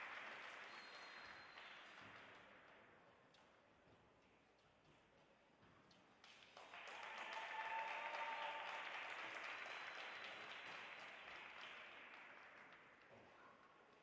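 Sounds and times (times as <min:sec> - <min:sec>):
audience applauding: 0:00.0 - 0:02.1, 0:06.6 - 0:13.0.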